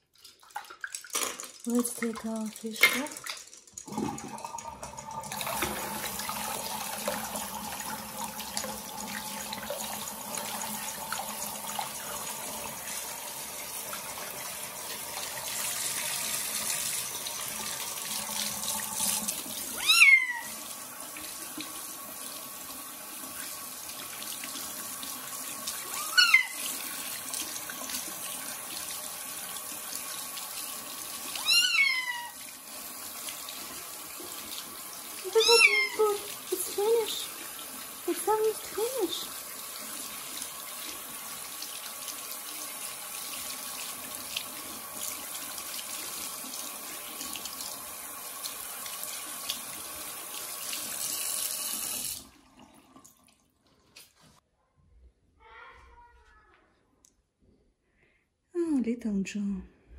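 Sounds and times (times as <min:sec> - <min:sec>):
tap water running into sink: 0:00.0 - 0:54.1
kitten meowing: 0:19.8 - 0:20.5, 0:25.9 - 0:26.6, 0:31.4 - 0:32.4, 0:35.3 - 0:36.2.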